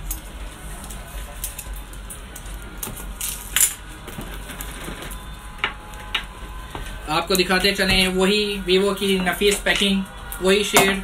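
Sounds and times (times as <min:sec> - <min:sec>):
low hum: 0:00.0 - 0:11.0
plastic shrink-wrap crinkling: 0:00.7 - 0:07.8.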